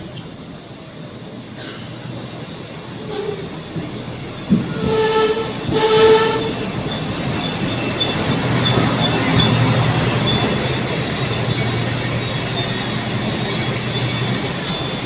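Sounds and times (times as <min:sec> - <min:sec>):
train engine humming: 0:00.0 - 0:15.0
train horn blasts: 0:04.7 - 0:06.7.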